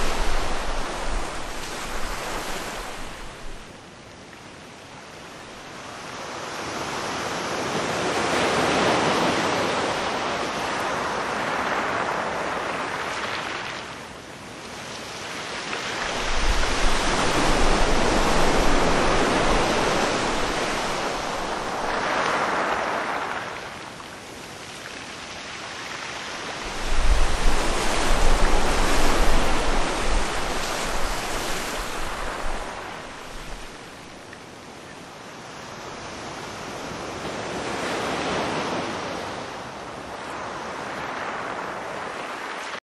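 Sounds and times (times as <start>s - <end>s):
waves breaking: 0.0s - 3.7s, 15.5s - 24.8s, 25.5s - 34.2s
wind buffeting microphone: 0.0s - 3.7s, 16.0s - 22.0s, 26.6s - 33.9s.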